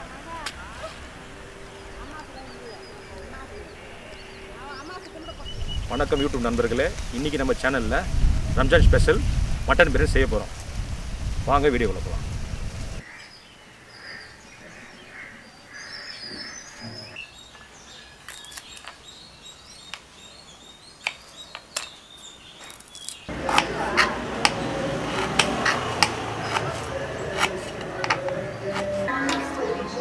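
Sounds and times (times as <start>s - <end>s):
knife chopping on wooden board: 23.3s - 29.4s.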